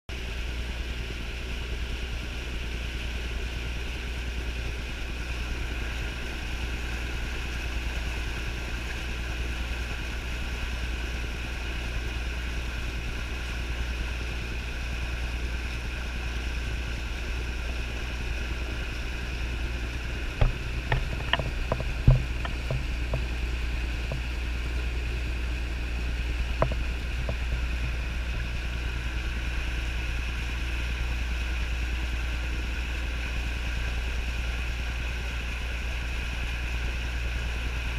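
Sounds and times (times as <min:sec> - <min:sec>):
muffled boat motor and water: 0:00.1 - 0:37.9
sharp knocks: 0:20.4 - 0:23.3.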